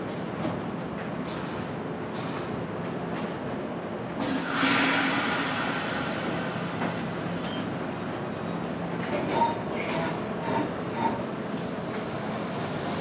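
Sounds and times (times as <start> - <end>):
train humming at platform: 0.0 - 13.0
loud hiss of released air: 4.2 - 8.0.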